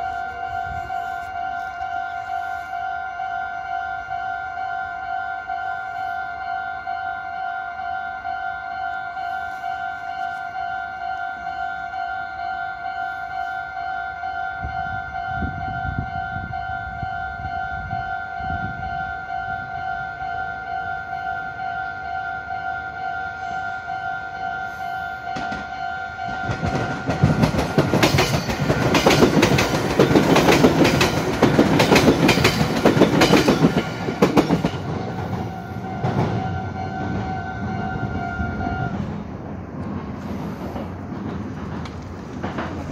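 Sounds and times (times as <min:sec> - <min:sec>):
level-crossing warning bell: 0:00.0 - 0:39.2
train wheels clattering: 0:25.3 - 0:42.9.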